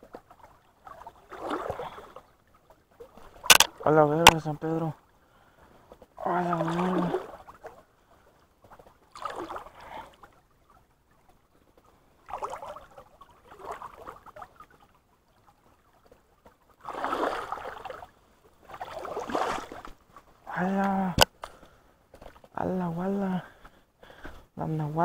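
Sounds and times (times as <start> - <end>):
water splashing around wading legs: 0.0 - 4.6, 5.9 - 20.5
running stream water: 0.0 - 25.0.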